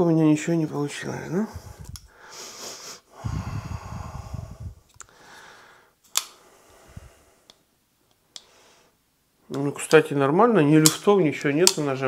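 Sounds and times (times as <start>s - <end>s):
person breathing out: 1.5s - 7.5s
folding knife clicks: 6.1s - 6.4s.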